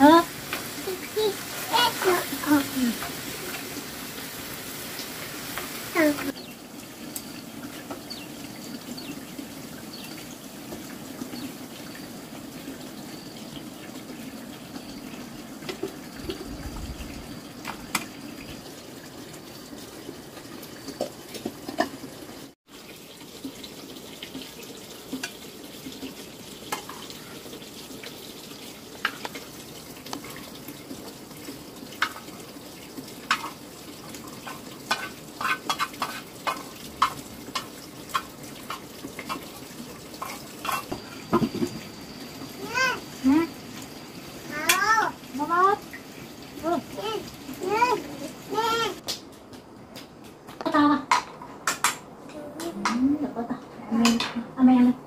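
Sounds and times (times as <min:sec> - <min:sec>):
water running from tap: 0:00.0 - 0:49.0
dishes clinking and knocking: 0:40.2 - 0:41.9.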